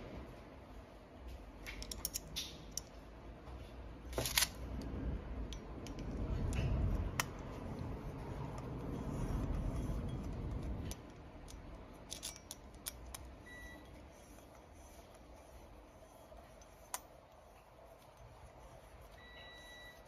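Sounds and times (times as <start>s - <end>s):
metallic clicks of socket tool: 1.7s - 2.9s.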